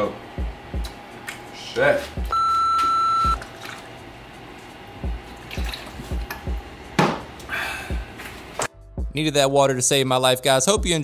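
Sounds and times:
background music with beat: 0:00.4 - 0:01.1, 0:02.1 - 0:02.4, 0:05.0 - 0:07.0, 0:07.9 - 0:09.5, 0:10.4 - 0:11.0
censor bleep: 0:02.3 - 0:03.4.

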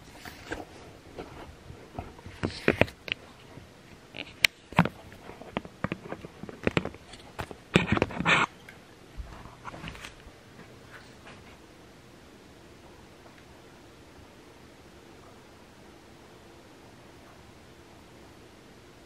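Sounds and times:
plastic and cardboard crackling: 0:00.0 - 0:08.6.

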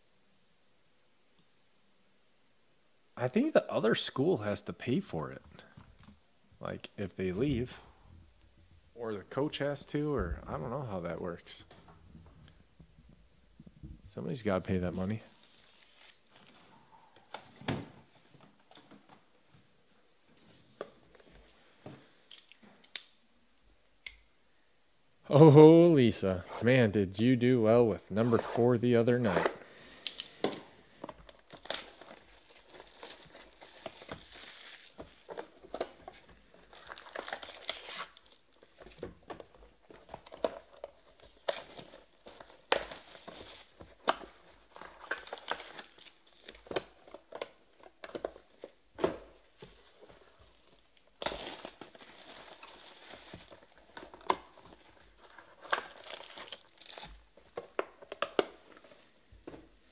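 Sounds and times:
shrink wrap crinkling and tearing: 0:15.0 - 0:16.6, 0:31.2 - 0:39.0, 0:39.6 - 0:48.8, 0:49.8 - 0:58.9.

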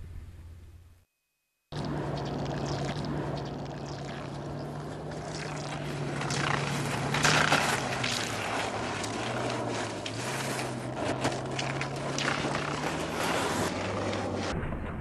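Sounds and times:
low hum: 0:00.0 - 0:01.1, 0:01.7 - 0:15.0
skis skating over snow: 0:05.0 - 0:14.5
skis scraping: 0:05.9 - 0:14.5.

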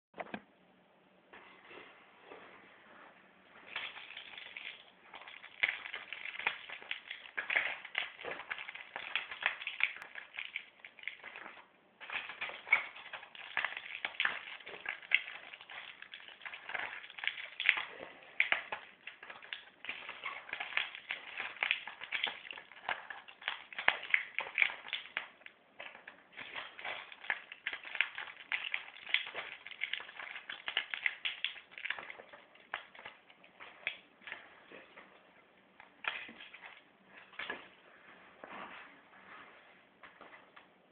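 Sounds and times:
tablets popping through blister foil: 0:03.6 - 0:34.4, 0:35.8 - 0:37.5.

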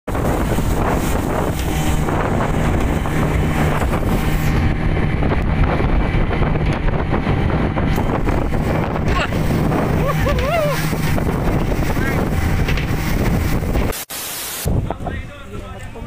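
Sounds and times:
speedboat engine drone: 0:00.1 - 0:14.0
wind buffeting microphone: 0:00.1 - 0:14.0, 0:14.6 - 0:16.0
water rushing past hull: 0:00.1 - 0:15.3.

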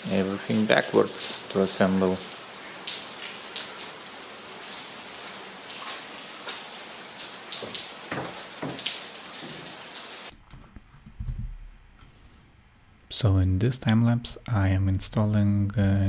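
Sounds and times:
rain-like hiss: 0:00.0 - 0:10.3.

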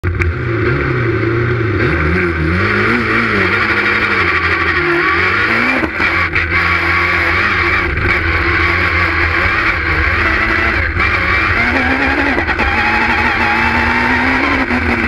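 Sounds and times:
rally car engine revving: 0:00.0 - 0:15.0.

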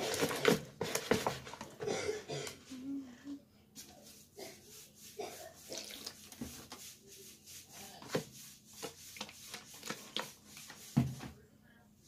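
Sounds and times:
spoon stirring slime in bowl: 0:03.8 - 0:10.9
water pouring from bottle: 0:05.7 - 0:06.3.

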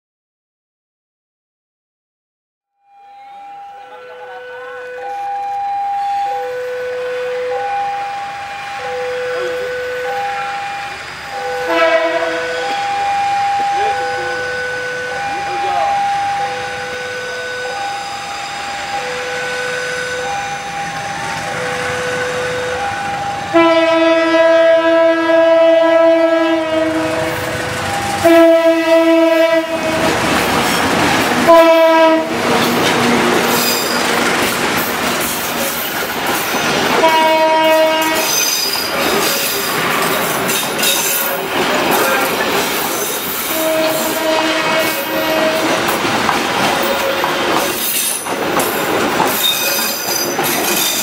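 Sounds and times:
two-tone crossing warning alarm: 0:02.8 - 0:34.9, 0:35.7 - 0:51.0
locomotive horn blasts: 0:03.2 - 0:05.6, 0:06.2 - 0:17.8, 0:21.6 - 0:30.6, 0:31.3 - 0:34.2, 0:36.9 - 0:38.6, 0:43.4 - 0:46.0
train wheels squealing: 0:07.6 - 0:11.7, 0:12.5 - 0:23.4, 0:33.5 - 0:34.5, 0:38.1 - 0:44.2, 0:46.8 - 0:51.0
train wheels clicking on rails: 0:26.9 - 0:28.7, 0:29.4 - 0:51.0.

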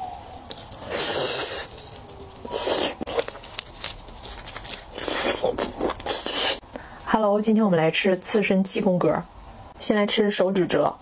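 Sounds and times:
slurping and sucking: 0:00.7 - 0:03.3, 0:04.9 - 0:06.6.

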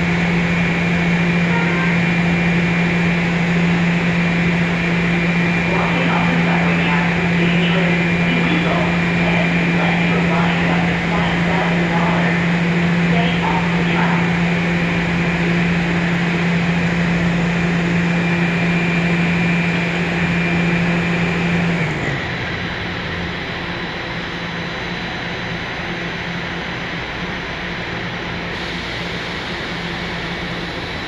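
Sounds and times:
machinery drone with high whine: 0:00.0 - 0:31.0.

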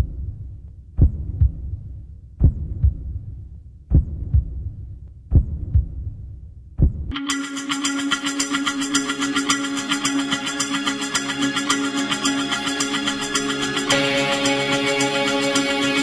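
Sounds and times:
heartbeat thumps: 0:00.0 - 0:07.2.

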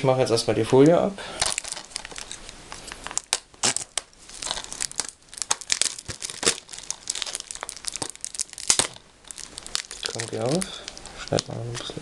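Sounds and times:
plastic shrink wrap crinkling: 0:01.4 - 0:12.0.

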